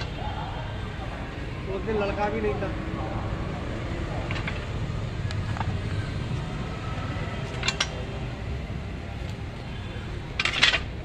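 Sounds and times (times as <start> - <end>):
steady low rumble: 0.0 - 10.4
metallic clanks of steel wheel: 7.5 - 8.0.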